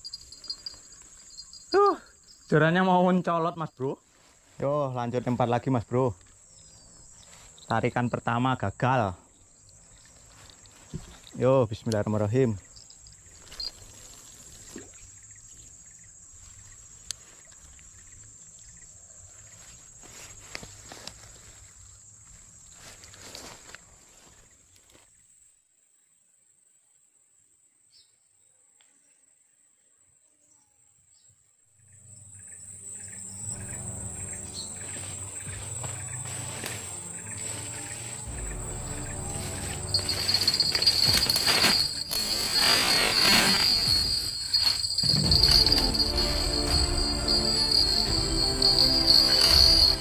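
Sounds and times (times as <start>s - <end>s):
high insect drone: 0.0s - 24.6s, 31.9s - 50.0s
river rushing: 38.4s - 50.0s.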